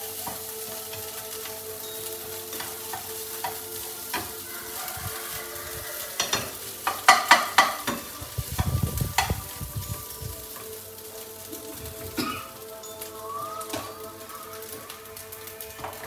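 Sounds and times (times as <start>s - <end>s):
spatula scraping and knocking wok: 0.0s - 12.0s
food sizzling in a wok: 0.0s - 16.0s.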